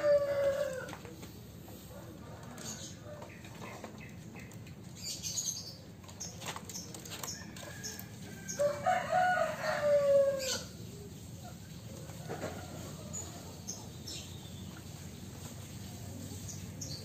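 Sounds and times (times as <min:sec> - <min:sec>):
rooster crowing: 0:00.0 - 0:01.0, 0:07.8 - 0:10.7.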